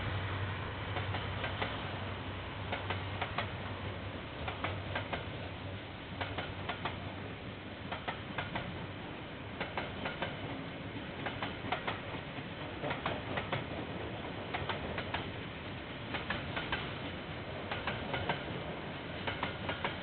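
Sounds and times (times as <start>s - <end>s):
train rolling rumble: 0.0s - 20.0s
train wheels clicking over rail joints: 0.9s - 20.0s.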